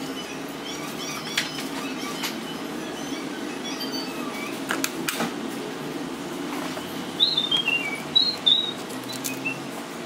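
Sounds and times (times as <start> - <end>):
low background hum: 0.0 - 10.0
bird chirping: 7.2 - 9.7.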